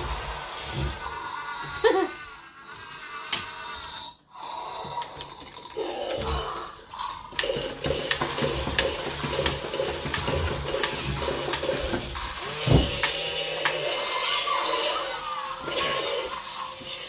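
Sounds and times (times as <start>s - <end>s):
small toy motor whirring: 3.0s - 17.0s
walking gears clicking: 7.2s - 13.8s.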